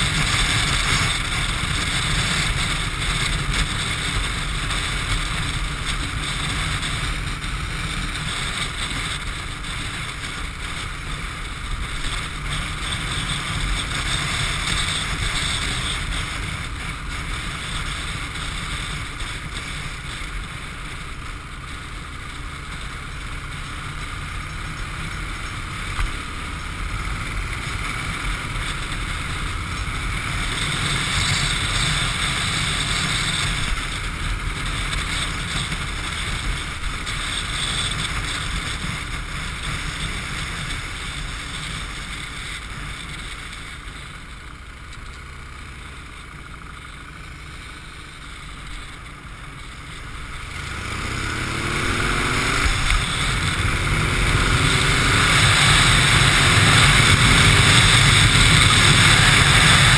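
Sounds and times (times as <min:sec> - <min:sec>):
motorcycle engine rumble: 0:00.0 - 0:59.9
wind rushing over microphone: 0:50.3 - 0:59.9.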